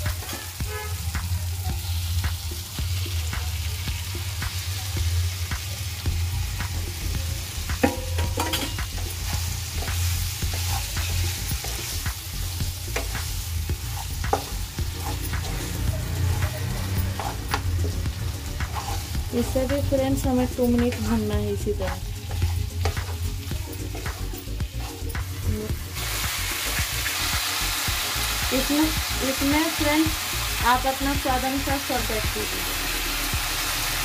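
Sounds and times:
food sizzling in a pan: 0:00.0 - 0:34.0
knocks in a pan: 0:07.8 - 0:08.9
wooden spatula scraping a pan: 0:10.5 - 0:11.9, 0:13.8 - 0:18.0, 0:18.7 - 0:19.6.

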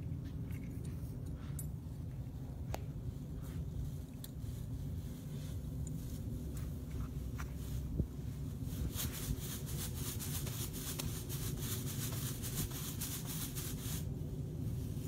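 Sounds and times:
wind rumble on microphone: 0:02.4 - 0:10.7.

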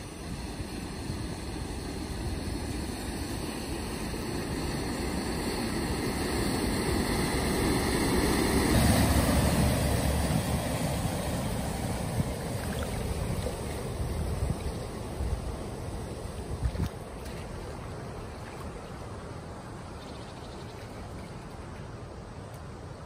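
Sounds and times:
water surging and splashing: 0:00.0 - 0:23.0.

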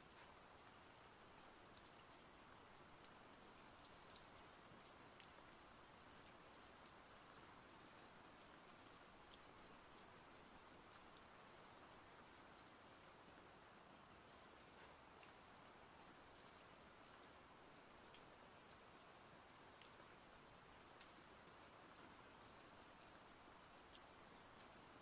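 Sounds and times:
faint steady rain: 0:00.0 - 0:25.0
raindrops ticking: 0:00.2 - 0:07.4.

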